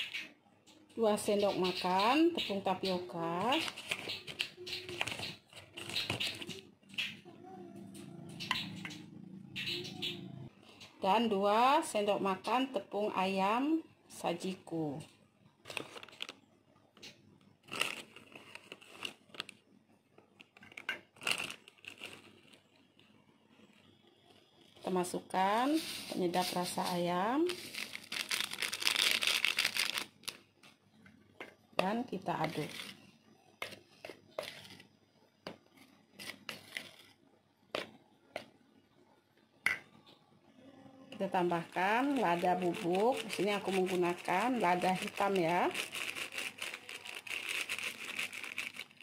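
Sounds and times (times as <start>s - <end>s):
plastic sachet crinkling: 15.6s - 16.4s, 17.6s - 19.6s, 21.1s - 22.6s, 25.6s - 30.5s, 41.2s - 49.0s.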